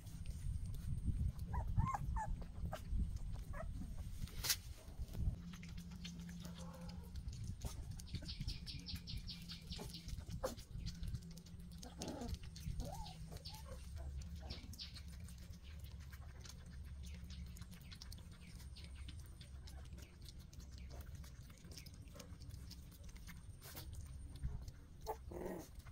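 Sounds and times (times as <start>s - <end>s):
puppy lapping milk: 0.0s - 4.0s, 5.3s - 25.9s
puppies whimpering: 1.4s - 3.8s, 11.8s - 15.2s.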